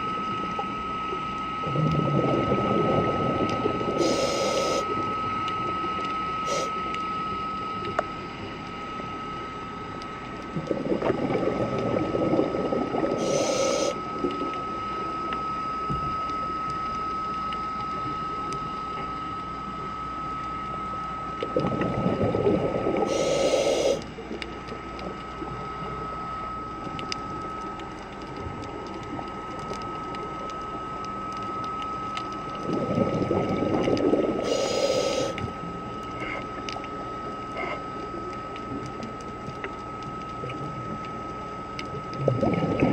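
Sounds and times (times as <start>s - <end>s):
diver exhaling bubbles underwater: 1.6s - 5.2s, 10.5s - 14.0s, 21.4s - 24.0s, 32.6s - 35.6s, 42.0s - 42.9s
regulator hiss: 3.9s - 5.0s, 6.4s - 6.9s, 13.1s - 14.1s, 22.9s - 24.1s, 34.3s - 35.5s.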